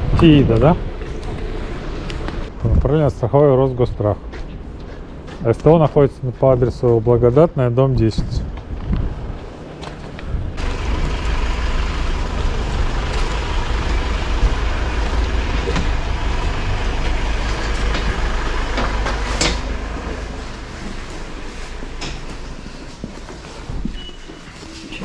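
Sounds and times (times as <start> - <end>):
vehicle rumble: 0.0 - 3.2, 8.4 - 25.0.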